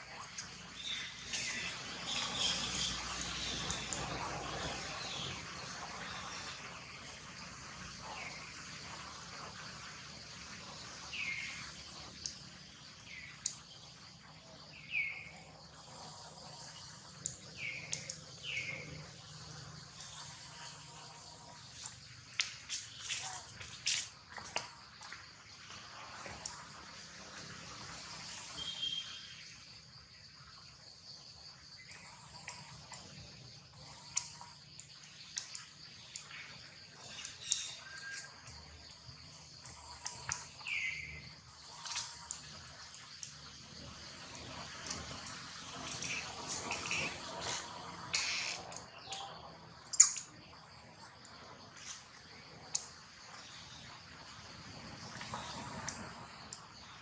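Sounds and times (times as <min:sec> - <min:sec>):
insect drone: 0:00.0 - 0:57.0
descending whistled call: 0:46.0 - 0:49.3.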